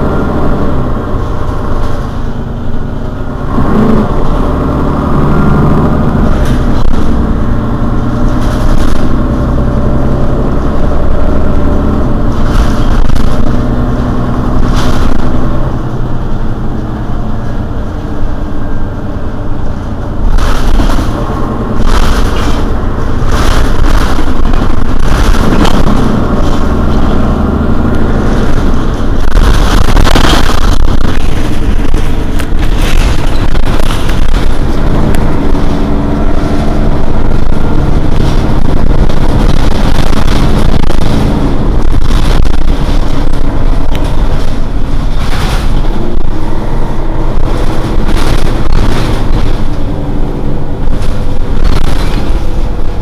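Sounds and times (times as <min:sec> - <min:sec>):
diesel bus engine idling: 0:15.3 - 0:25.2.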